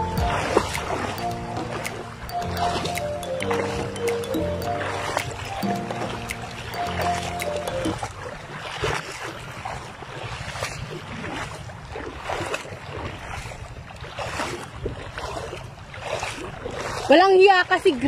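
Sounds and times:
water splashing from wading: 0.0s - 18.0s
wind buffeting microphone: 8.0s - 17.1s.

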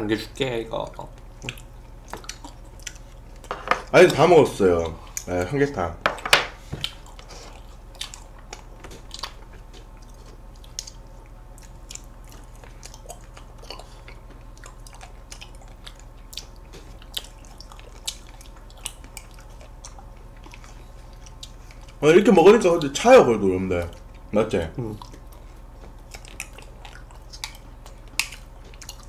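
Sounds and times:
mouth chewing sounds: 0.9s - 3.5s, 6.8s - 22.0s, 23.8s - 29.0s.

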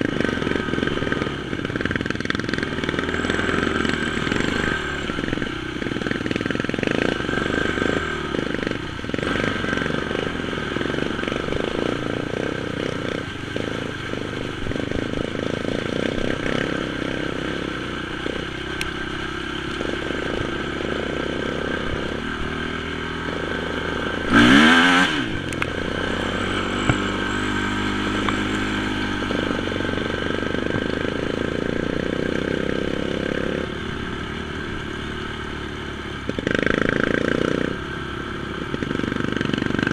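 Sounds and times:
quad engine running: 0.0s - 39.9s
sharp engine rev: 0.0s - 39.9s.

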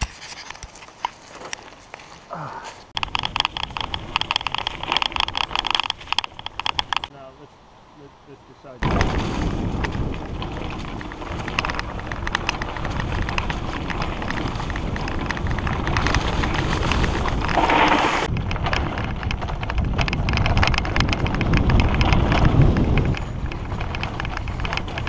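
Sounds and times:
bike tyres rolling over dirt: 0.0s - 7.2s, 8.8s - 25.0s
bike rattling clicks: 3.0s - 7.1s, 8.8s - 25.0s
wind on microphone: 8.8s - 25.0s.

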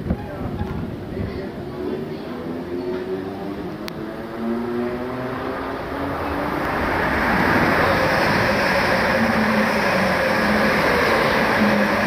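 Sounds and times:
train wheels rumbling on rail: 0.0s - 12.0s.

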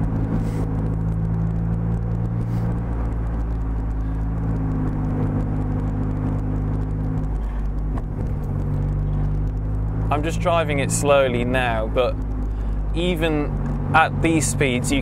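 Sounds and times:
car engine running at low revs: 0.0s - 15.0s.

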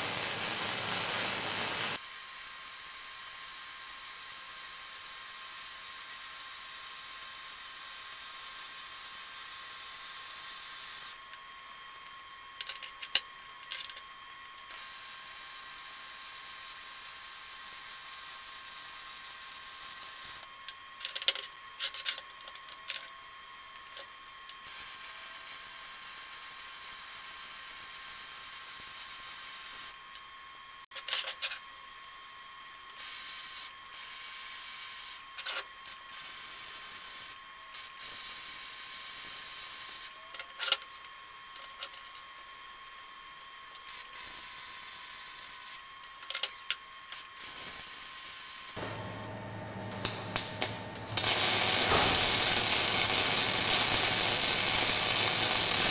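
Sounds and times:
welding arc hissing crackle: 0.0s - 4.2s, 47.2s - 55.9s
arc pops and clicks: 48.8s - 55.9s.

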